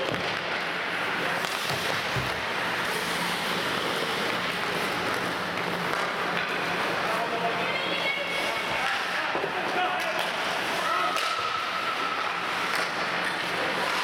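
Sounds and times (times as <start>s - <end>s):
skate blades scraping ice: 0.3s - 7.2s.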